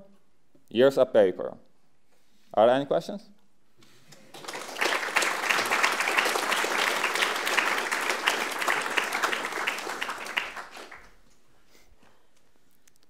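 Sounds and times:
audience applauding: 4.2 - 11.3.

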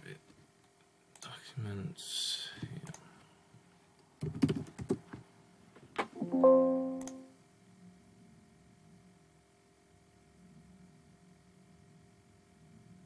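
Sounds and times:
system alert chime: 6.2 - 7.3
keyboard and mouse clicks: 7.0 - 7.2.

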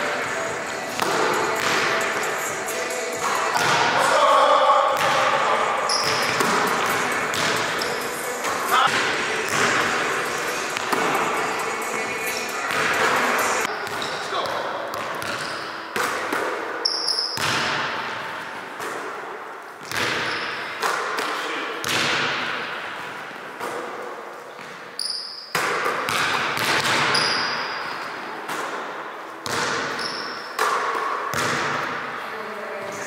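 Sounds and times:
sneaker squeaks on floor: 5.9 - 6.5, 7.4 - 8.1, 13.8 - 14.5, 15.2 - 15.8, 16.8 - 17.5, 20.1 - 20.8, 24.5 - 25.6, 27.0 - 28.1, 29.8 - 30.6
basketball bouncing on wooden floor: 6.0 - 7.7, 17.3 - 17.9.

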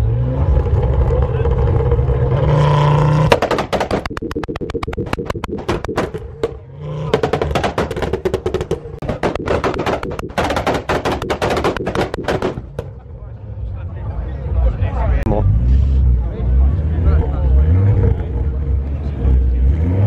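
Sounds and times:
exhaust pops and bangs: 3.3 - 13.0.

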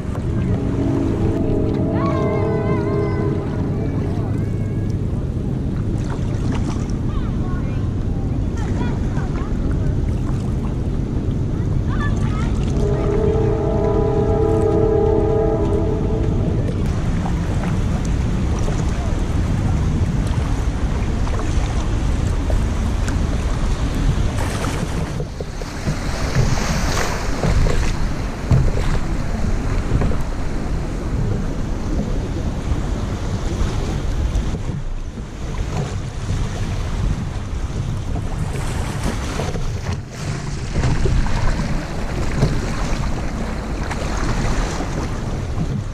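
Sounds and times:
held pitched tone: 0.0 - 5.4, 12.5 - 16.9
river water rushing and splashing: 0.0 - 45.9
wind buffeting microphone: 0.0 - 45.9.

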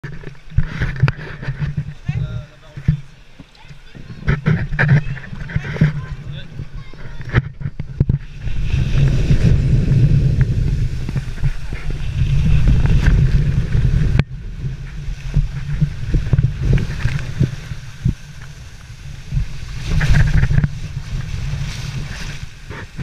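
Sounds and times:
scattered thumps: 0.0 - 8.3
water sloshing: 0.0 - 9.7
water rushing down a slide: 0.0 - 23.0.

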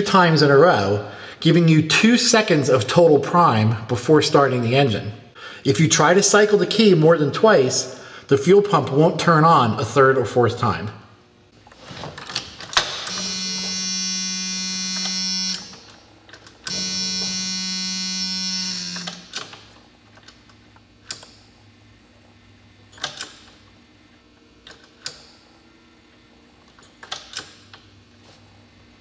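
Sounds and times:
electric buzz: 13.0 - 16.0, 16.6 - 19.6.

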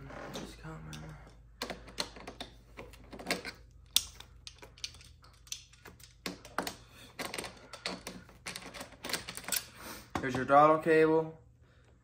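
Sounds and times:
small metal clicks and taps: 0.9 - 8.2.

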